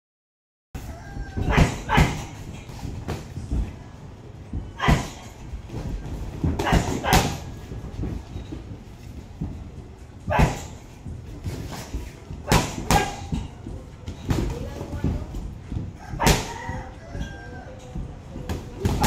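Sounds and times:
gloved punches landing: 11.5 - 13.5.

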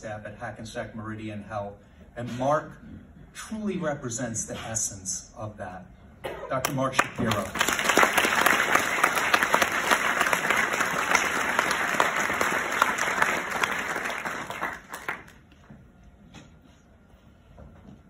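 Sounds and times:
audience applauding: 7.0 - 15.6.

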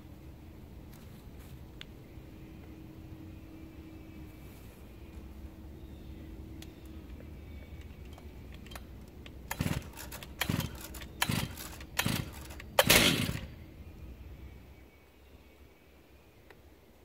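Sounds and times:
chainsaw engine turning over: 8.0 - 13.6.

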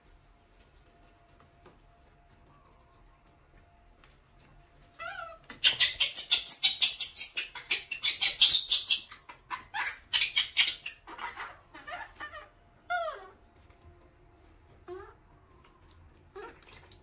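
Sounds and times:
baby monkey squeak: 5.0 - 12.5.

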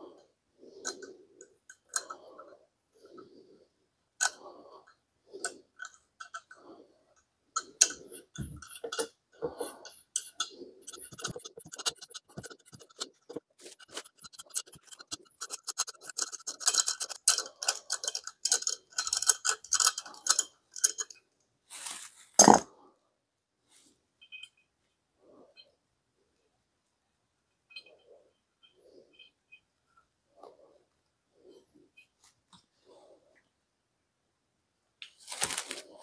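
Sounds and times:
hand tap clicking and scraping: 7.6 - 21.1.

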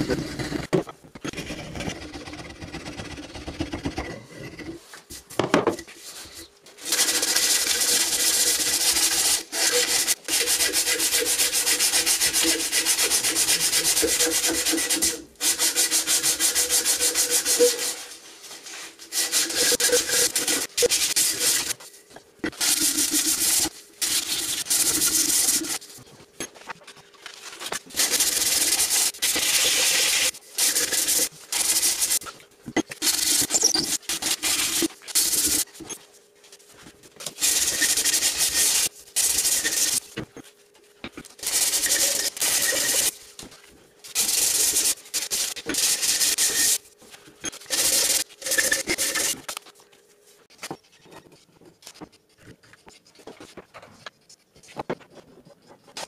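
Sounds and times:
sandpaper rubbing wood: 6.0 - 21.8, 22.6 - 26.0, 27.9 - 32.3, 33.0 - 35.7, 37.4 - 40.0, 41.4 - 43.2, 44.2 - 46.8, 47.7 - 49.4.

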